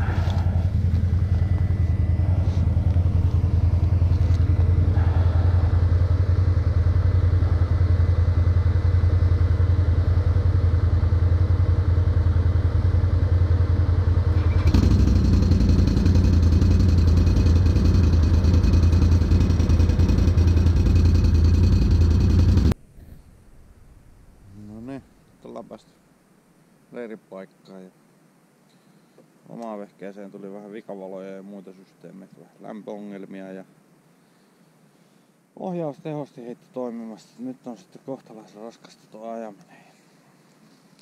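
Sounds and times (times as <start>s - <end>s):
atv engine running: 0.0s - 22.8s
bright whine: 0.0s - 25.3s.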